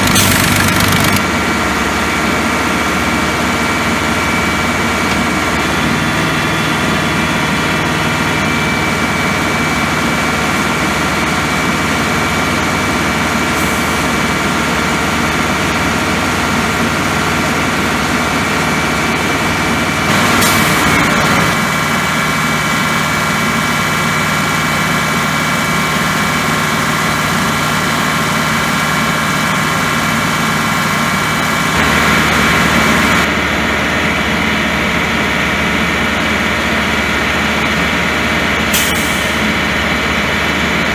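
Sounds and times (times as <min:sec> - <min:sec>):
steady whine: 0:00.0 - 0:25.9, 0:28.9 - 0:40.8
diesel engine running: 0:00.0 - 0:40.9.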